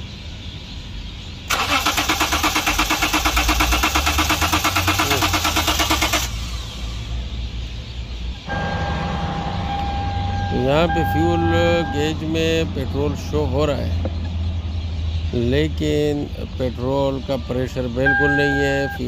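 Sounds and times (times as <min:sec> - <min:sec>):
starter cranking engine: 0:01.5 - 0:06.8
steady electronic tone: 0:08.4 - 0:12.2.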